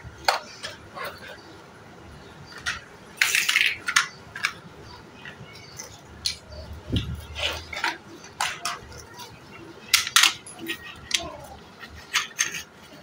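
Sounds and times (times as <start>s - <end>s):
plastic blocks clattering: 2.6s - 4.6s, 5.7s - 9.3s, 9.9s - 13.0s.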